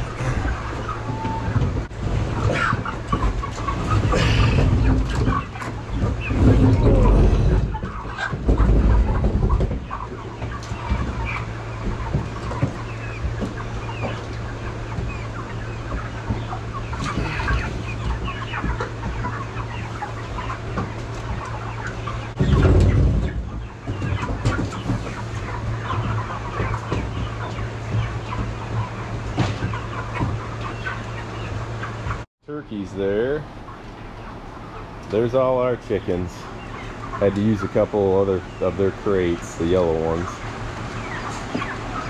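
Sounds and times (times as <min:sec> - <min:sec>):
crates rumbling when handled: 0:00.0 - 0:30.6
chickens clucking: 0:00.0 - 0:42.0
steady low hum: 0:00.0 - 0:42.0.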